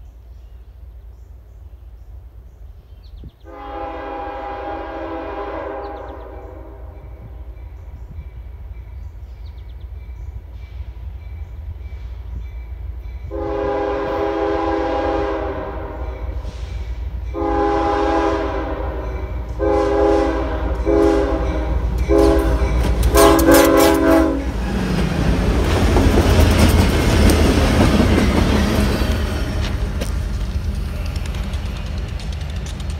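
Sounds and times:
low rumble of locomotive engine: 0.0s - 32.9s
train passing with loud rush: 0.0s - 32.9s
locomotive air horn blasts: 3.5s - 7.3s, 13.3s - 16.7s, 17.3s - 24.6s
wheels clattering on rails: 21.5s - 32.9s.

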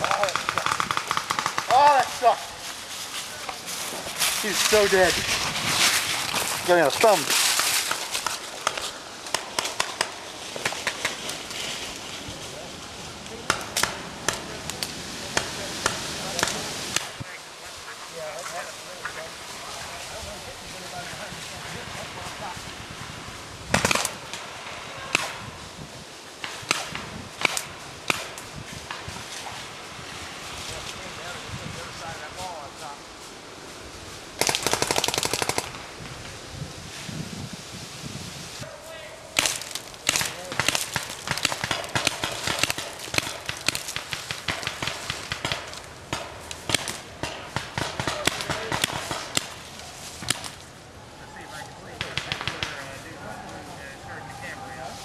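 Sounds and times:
footsteps crunching in dry leaves: 1.8s - 13.5s, 28.5s - 34.4s, 48.0s - 51.8s
paintball markers firing: 39.4s - 49.6s.

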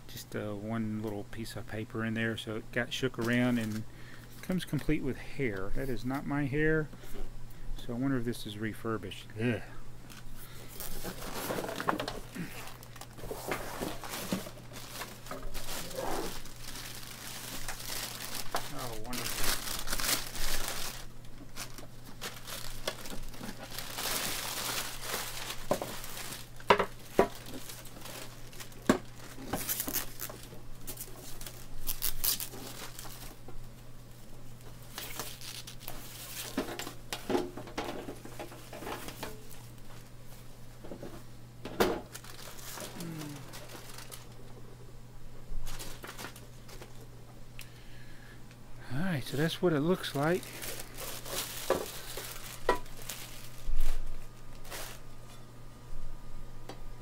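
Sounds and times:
plastic bag crinkling: 9.5s - 33.5s, 34.6s - 37.0s, 42.0s - 44.6s, 45.6s - 47.1s, 49.2s - 55.4s.

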